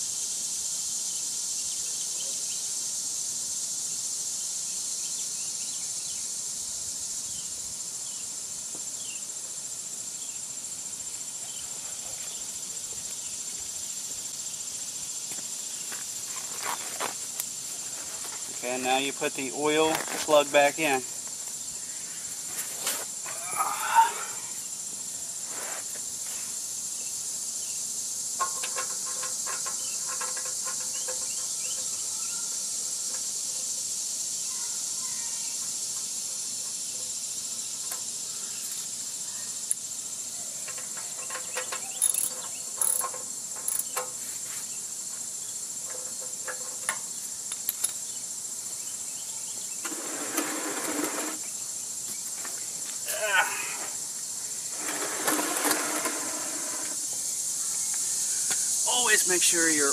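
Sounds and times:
metallic clinks and taps: 40.7s - 44.1s, 45.9s - 48.0s.

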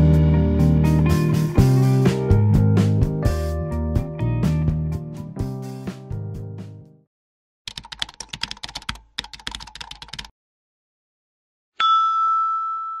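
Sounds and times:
keyboard typing: 7.7s - 10.3s
steady pitched chime: 11.8s - 13.0s.

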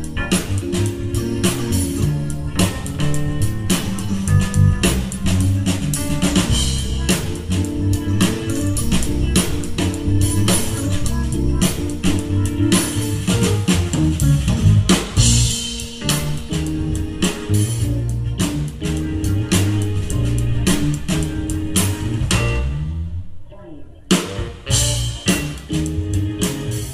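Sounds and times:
drum kit steady beat: 0.0s - 22.8s, 24.1s - 26.9s
live funk band playing: 0.0s - 26.9s.

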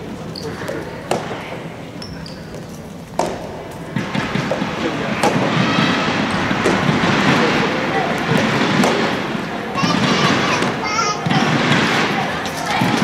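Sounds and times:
voices in hall: 0.0s - 13.0s
rackets striking ball: 0.3s - 13.0s
shoe squeak on wooden floor: 2.0s - 2.9s.

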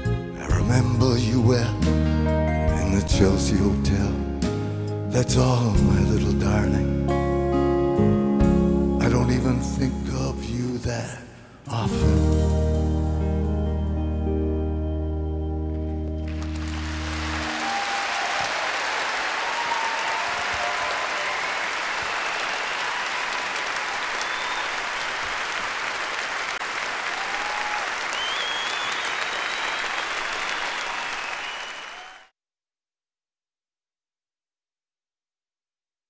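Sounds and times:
audience applauding: 15.7s - 32.3s
short cries from audience: 17.4s - 25.0s, 27.0s - 32.3s.

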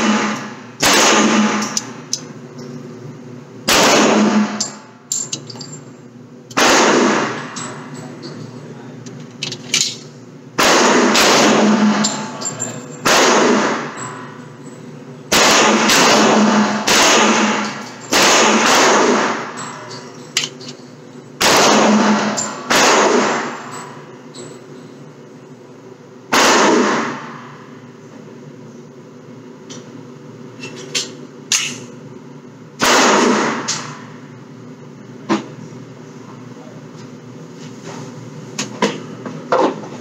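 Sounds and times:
gunshots echoing: 0.0s - 1.8s, 3.7s - 4.8s, 6.6s - 7.6s, 10.6s - 12.4s, 13.0s - 14.2s, 15.3s - 19.6s, 21.4s - 23.7s, 26.3s - 27.4s, 32.8s - 34.0s.

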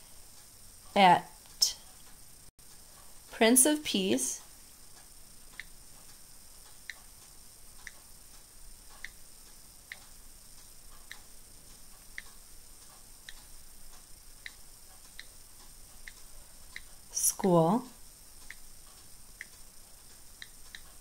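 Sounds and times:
on-screen keyboard clicks: 9.9s - 10.1s, 11.0s - 13.5s, 14.4s - 16.9s, 20.4s - 21.0s.

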